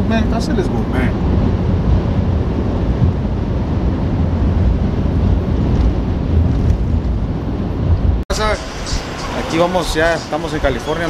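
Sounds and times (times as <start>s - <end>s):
road noise inside truck cab: 0.0s - 11.0s
wind noise: 0.0s - 11.0s.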